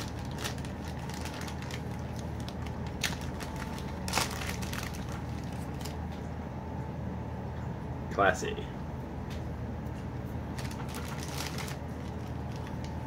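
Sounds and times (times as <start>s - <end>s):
packaging crinkling: 0.0s - 6.2s, 10.5s - 13.0s.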